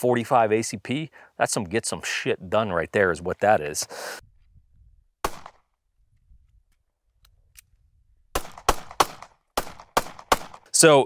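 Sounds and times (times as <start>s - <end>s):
pistol shots: 5.2s - 5.6s, 8.3s - 10.7s.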